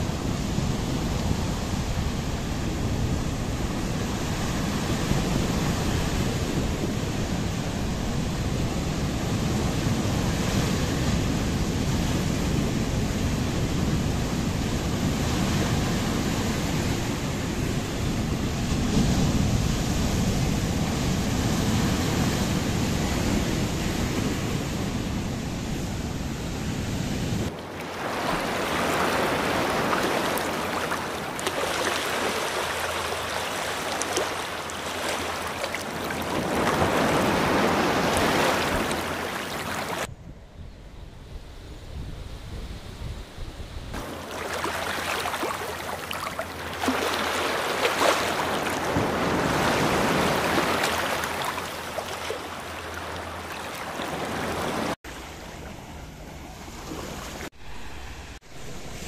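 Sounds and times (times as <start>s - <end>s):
surf breaking on rocky shore: 27.5s - 40.1s, 44.0s - 55.0s.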